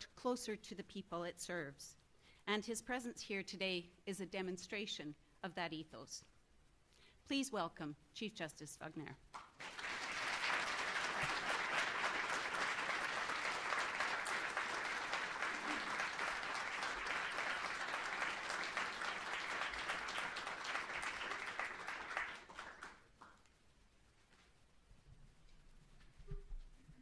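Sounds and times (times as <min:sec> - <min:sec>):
audience clapping: 0:09.3 - 0:23.5.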